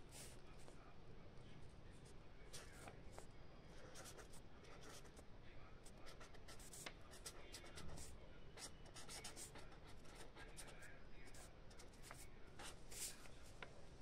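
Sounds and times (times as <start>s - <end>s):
pen scratching on paper: 2.5s - 5.2s, 6.0s - 13.6s.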